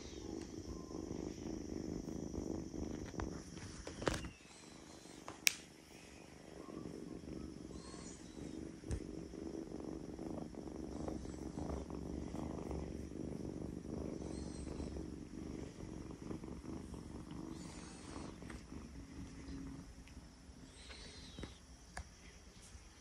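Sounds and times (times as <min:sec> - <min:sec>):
faint high chirps: 0:00.0 - 0:01.4, 0:04.0 - 0:08.6, 0:20.6 - 0:22.3
kitten purring: 0:00.0 - 0:23.0.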